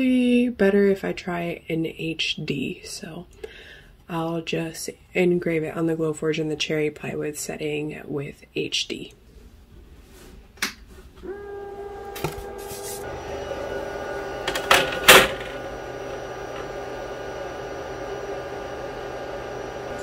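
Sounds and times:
machine hum: 0:11.2 - 0:20.0.

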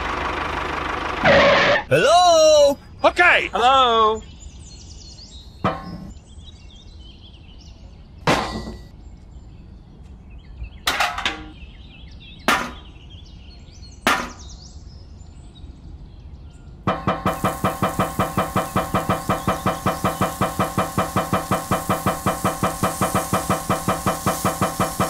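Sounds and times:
birds chirping: 0:01.9 - 0:09.4, 0:16.5 - 0:25.0
fast mechanical knocking: 0:16.9 - 0:25.0
tin buckets clinking and knocking: 0:16.9 - 0:25.0.

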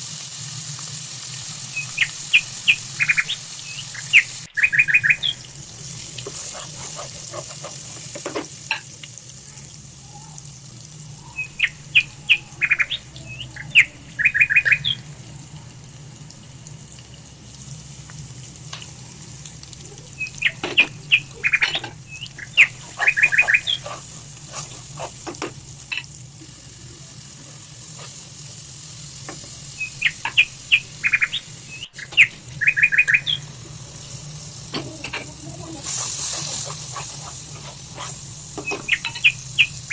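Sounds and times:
steady hiss: 0:00.0 - 0:39.9
bird-like chirping: 0:01.7 - 0:05.5, 0:11.0 - 0:15.1, 0:19.9 - 0:25.1, 0:29.6 - 0:34.2, 0:34.8 - 0:39.9.

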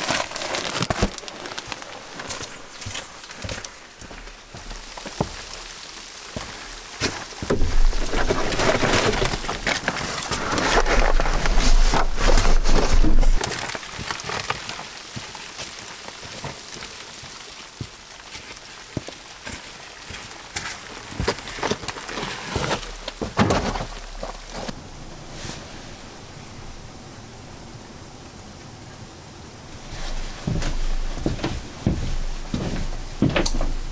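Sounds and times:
rustling near microphone: 0:00.0 - 0:15.0, 0:29.8 - 0:33.9
light rain pattering: 0:00.0 - 0:33.9
sharp ticks of raindrops: 0:00.3 - 0:08.2, 0:13.4 - 0:22.2.

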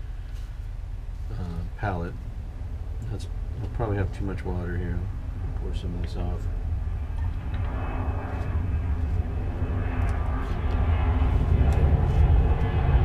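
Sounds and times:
low engine drone: 0:00.0 - 0:13.0.

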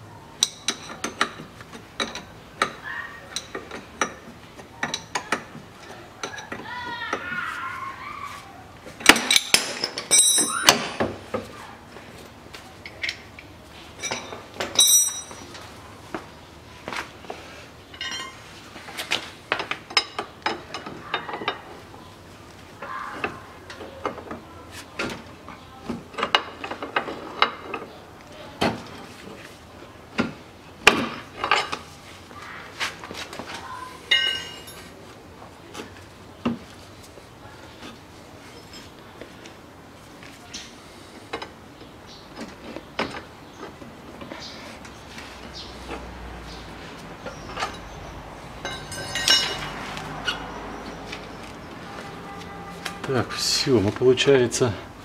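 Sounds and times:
metal tools clinking and knocking: 0:09.0 - 0:11.1, 0:12.8 - 0:15.7, 0:17.9 - 0:18.5, 0:31.1 - 0:31.9, 0:34.1 - 0:34.9, 0:47.2 - 0:48.0, 0:48.6 - 0:51.2.

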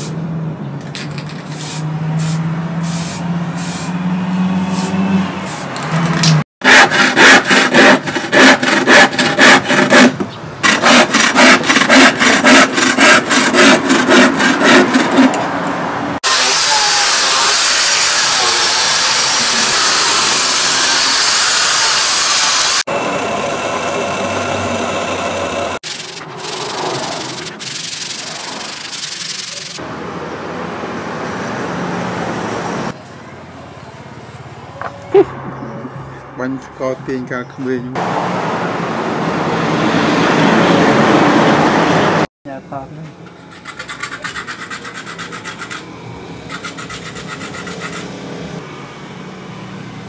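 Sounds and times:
angle grinder sanding wood: 0:06.6 - 0:15.4, 0:16.2 - 0:29.8, 0:43.5 - 0:45.9
hand saw cutting wood: 0:06.6 - 0:15.5, 0:16.2 - 0:22.9, 0:25.8 - 0:29.8, 0:43.4 - 0:48.2.

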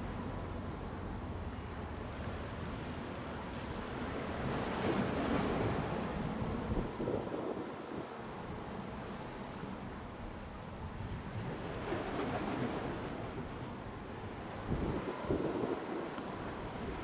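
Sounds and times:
choppy sea waves: 0:00.0 - 0:17.0
wind rumbling on microphone: 0:03.6 - 0:08.7, 0:10.7 - 0:17.0.

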